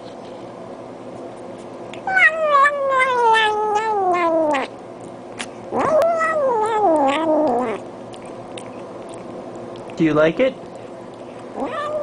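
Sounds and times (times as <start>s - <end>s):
cat meowing: 2.0s - 4.7s, 5.8s - 7.8s, 11.6s - 12.0s.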